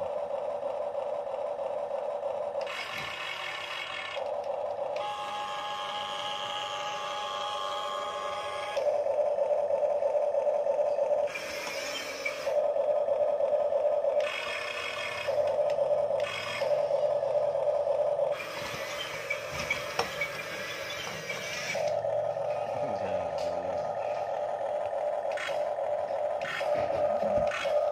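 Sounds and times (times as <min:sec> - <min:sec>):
electric motor whine: 0:00.0 - 0:27.9
hissy gear noise: 0:18.4 - 0:27.9.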